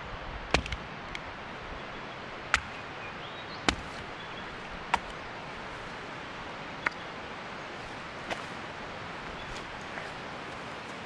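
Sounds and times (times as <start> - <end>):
hatchet chopping wood: 0.5 - 0.9, 2.5 - 2.9, 3.6 - 5.3.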